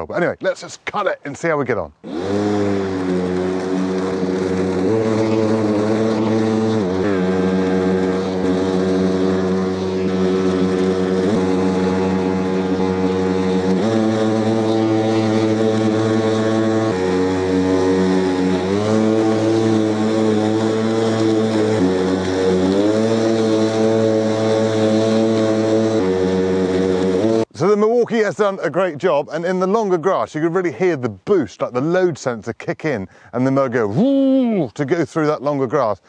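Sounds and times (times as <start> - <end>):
lawnmower motor humming: 2.0 - 27.7.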